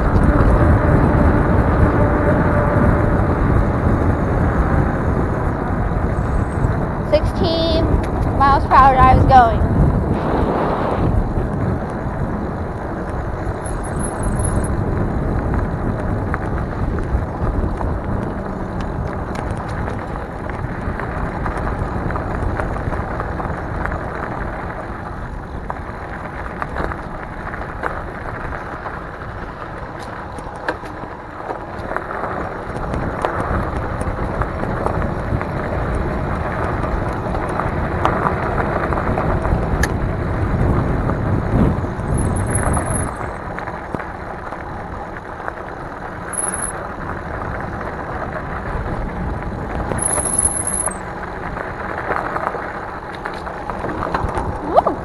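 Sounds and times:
bike tyre rumble on path: 0.0 - 55.0
wind rushing over microphone: 0.0 - 55.0
bike clicks and rattles: 11.5 - 40.1, 41.9 - 48.1, 49.8 - 54.7.

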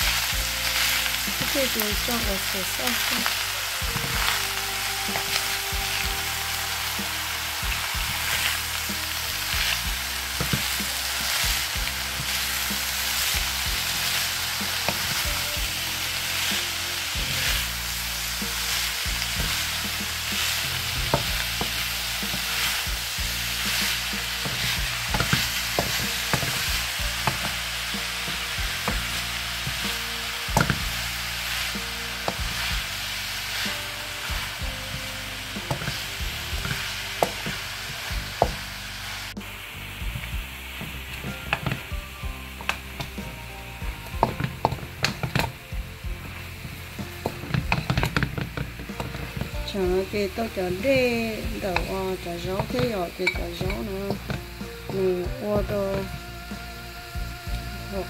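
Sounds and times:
spatula scraping and knocking pan: 0.0 - 38.7
food sizzling in frying pan: 0.0 - 58.0.

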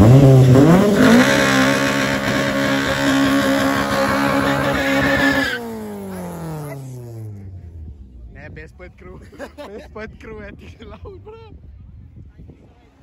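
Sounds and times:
car engine revving: 0.0 - 8.0
tyres screeching on tarmac: 0.8 - 5.8.

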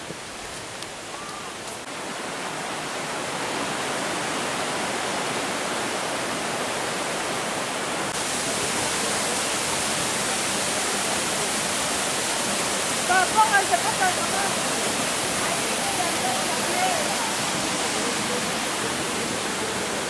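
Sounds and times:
stream and waterfall rushing: 0.0 - 20.0.

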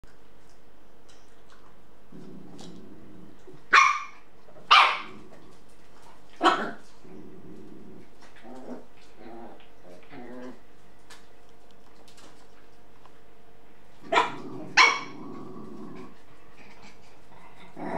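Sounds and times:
dog growling: 2.1 - 3.7, 4.9 - 5.7, 6.4 - 10.7, 14.0 - 17.9.

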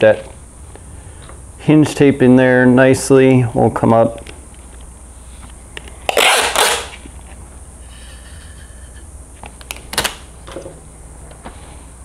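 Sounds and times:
adhesive tape ripped off roll: 6.1 - 7.1, 9.7 - 10.2.

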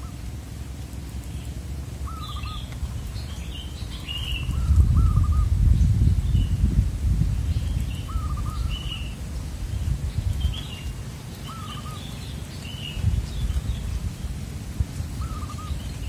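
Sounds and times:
steady low rumble: 0.0 - 11.3
small bird high chirps: 1.3 - 6.6, 7.5 - 9.2, 10.3 - 14.0
dove cooing: 2.0 - 3.2, 3.8 - 5.6, 8.1 - 9.1, 11.5 - 12.0, 15.1 - 16.0.

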